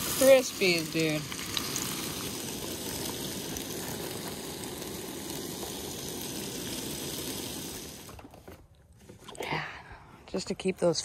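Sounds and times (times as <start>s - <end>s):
food sizzling: 0.0s - 8.4s.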